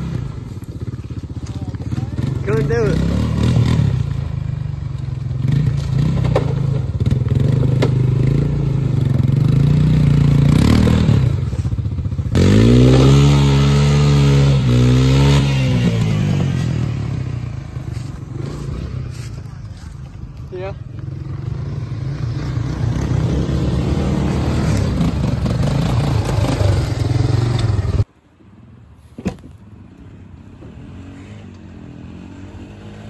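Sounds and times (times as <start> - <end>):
engine revving: 1.4 - 19.2, 20.7 - 28.1, 30.6 - 33.0.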